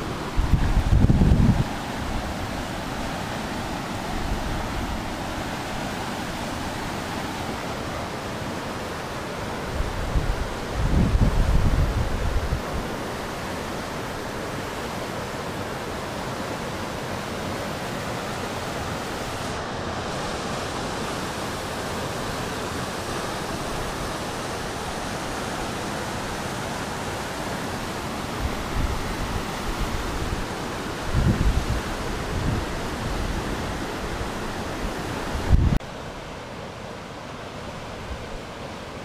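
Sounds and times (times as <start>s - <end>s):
river rapids roaring: 0.0s - 39.0s
wind buffets on microphone: 0.3s - 2.5s, 9.7s - 12.9s, 28.4s - 35.8s.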